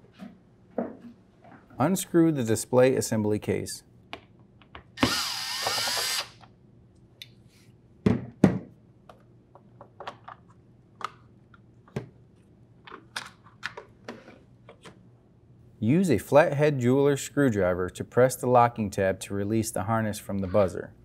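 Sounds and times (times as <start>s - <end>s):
cordless drill whining: 5.0s - 6.4s.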